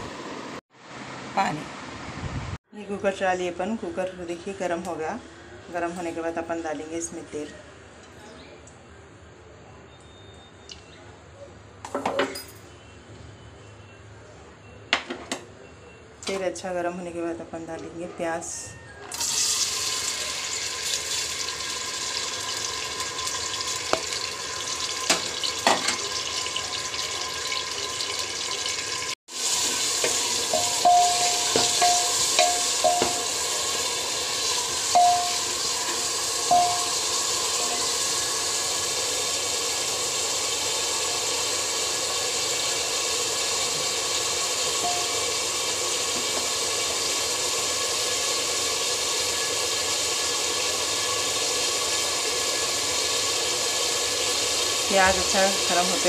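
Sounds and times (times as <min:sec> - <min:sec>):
onions sizzling in oil: 0:19.1 - 0:56.0.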